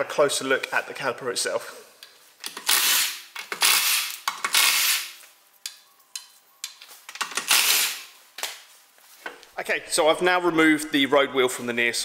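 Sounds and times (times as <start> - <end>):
impact wrench spinning bolts: 2.4 - 5.2, 7.1 - 8.1.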